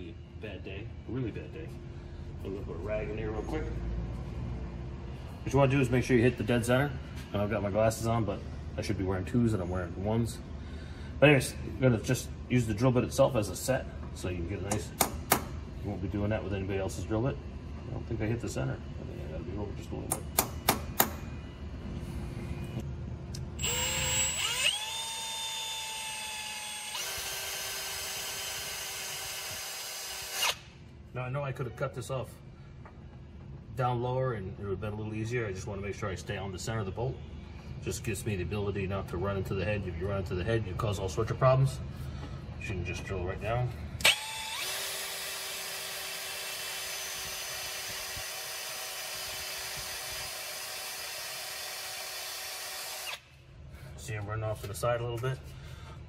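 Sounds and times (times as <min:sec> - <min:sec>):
power drill whining: 0:23.6 - 0:30.7, 0:44.0 - 0:53.2.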